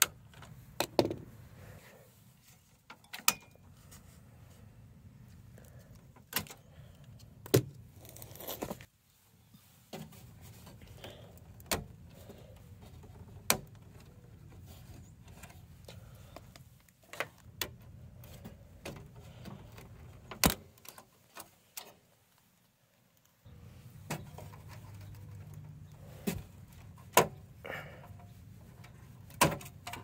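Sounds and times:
clicks and knocks of plastic parts: 0.0 - 1.3, 5.6 - 7.9, 9.9 - 22.0, 24.0 - 30.0.

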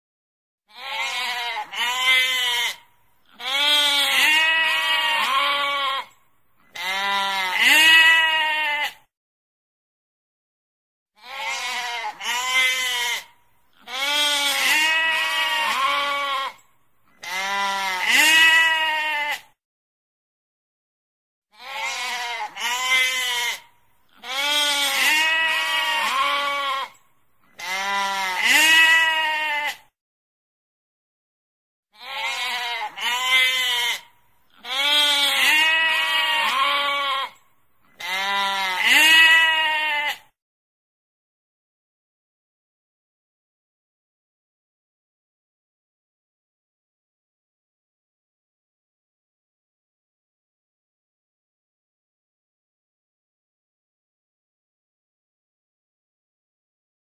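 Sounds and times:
sheep bleating: 0.7 - 9.1, 11.2 - 19.5, 21.5 - 29.9, 32.0 - 40.3.

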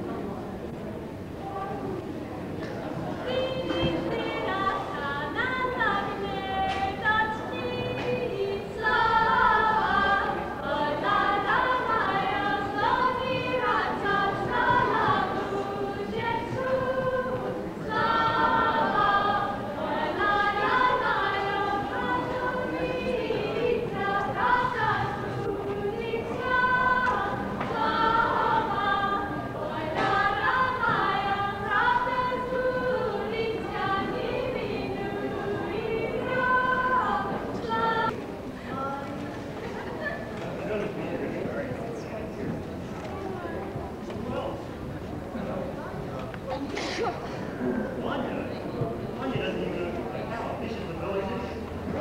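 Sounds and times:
group singing unaccompanied: 3.0 - 38.2.

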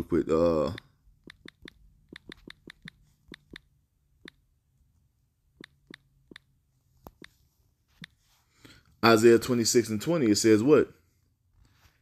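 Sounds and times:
touchscreen typing taps: 1.2 - 4.4.

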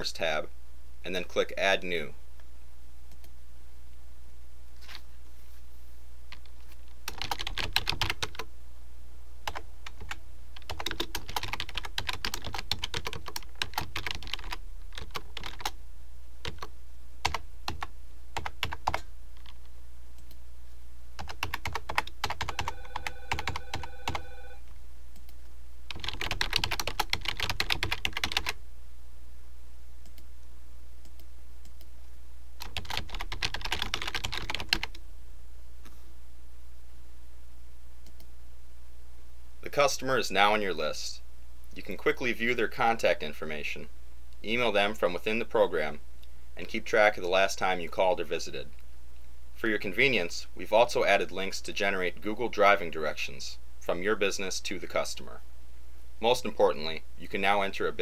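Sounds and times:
keyboard typing: 6.3 - 8.5, 9.5 - 15.8, 16.4 - 19.6, 21.2 - 24.6, 25.2 - 28.6, 32.6 - 35.0.

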